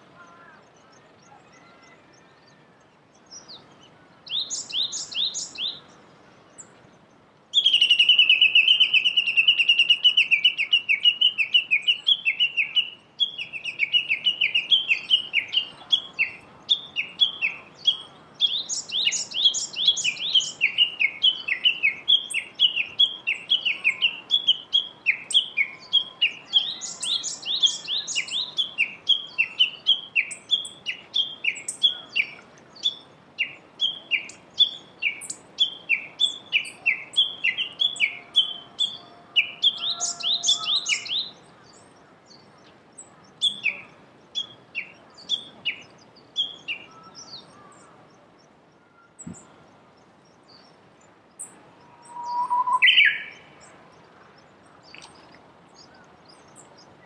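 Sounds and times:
bush warbler calling: 3.2s - 57.0s
higher quicker bird notes: 51.8s - 53.4s.

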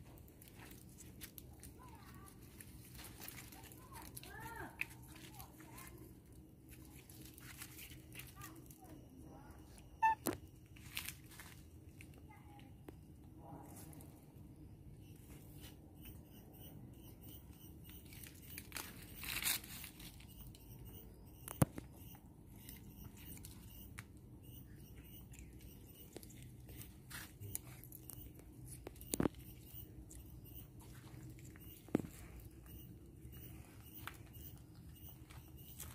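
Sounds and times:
rustling and scraping on branches: 6.7s - 8.6s, 10.8s - 11.7s, 18.2s - 20.2s.

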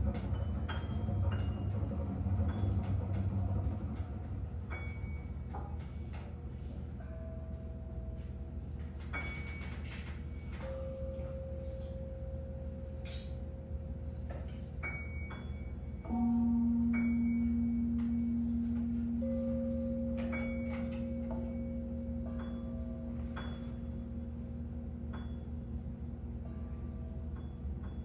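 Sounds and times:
lower held tone: 0.0s - 28.0s
long held tone: 7.0s - 28.0s
struck metallic pings: 14.4s - 28.0s.

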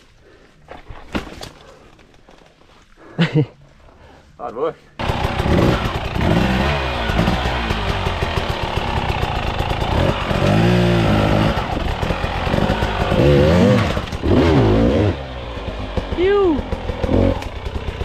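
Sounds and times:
dirt bike engine revving: 5.0s - 18.0s.

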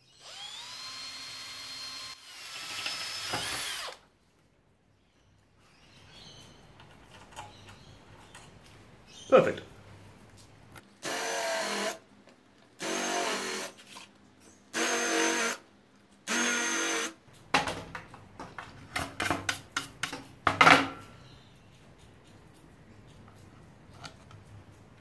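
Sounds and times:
cordless driver motor whine: 0.1s - 2.3s.

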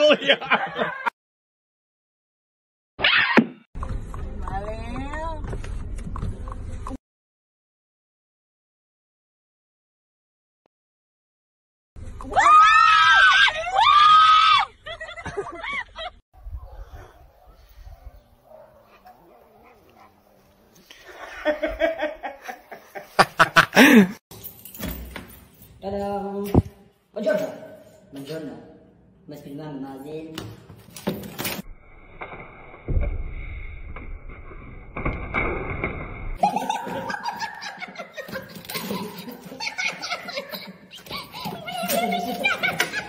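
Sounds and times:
person laughing: 14.8s - 16.2s, 21.1s - 24.2s, 36.4s - 41.6s.

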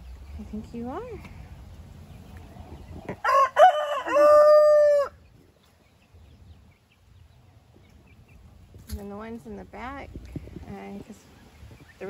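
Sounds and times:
rooster crowing: 3.2s - 5.2s.

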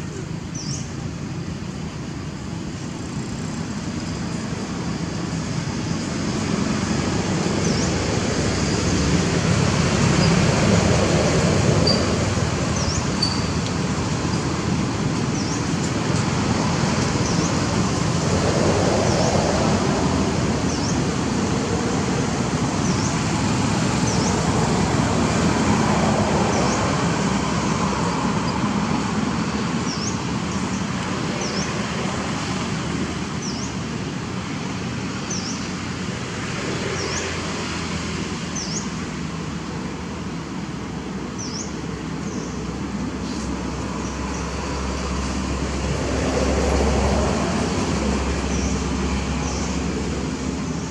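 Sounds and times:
distant road traffic rumble: 0.0s - 50.9s.

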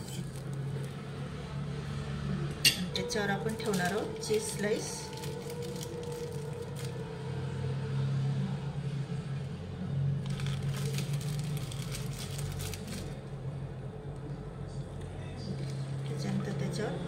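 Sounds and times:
plastic wrapper crinkling: 0.0s - 1.0s, 3.5s - 7.0s, 10.2s - 13.2s.

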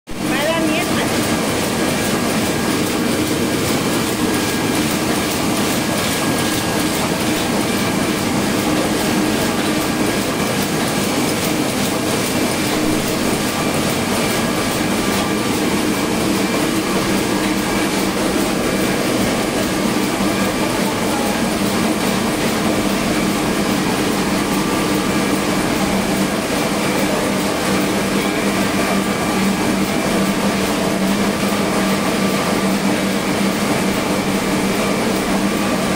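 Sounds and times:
printing press running: 0.1s - 35.9s.

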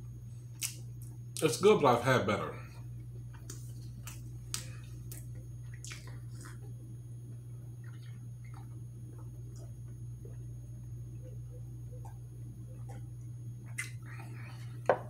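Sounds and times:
steady low hum: 0.0s - 15.0s
man chewing with wet smacks: 0.4s - 1.4s, 2.8s - 15.0s
sipping and swallowing: 4.8s - 6.8s, 7.7s - 14.9s.

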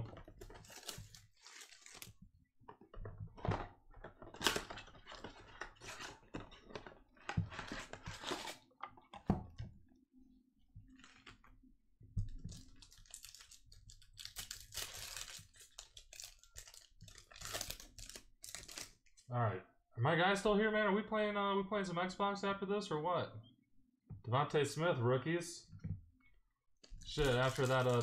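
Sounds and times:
card packs rustling and tapping: 0.2s - 9.3s, 26.9s - 28.0s
plastic shrink-wrap crinkling: 0.4s - 2.1s, 12.4s - 19.0s, 26.9s - 28.0s.

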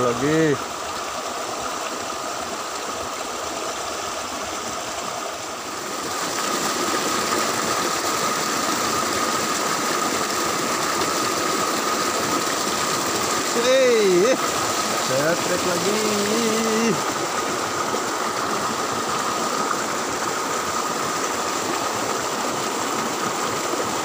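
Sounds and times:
stream rushing over rocks: 0.0s - 24.0s.

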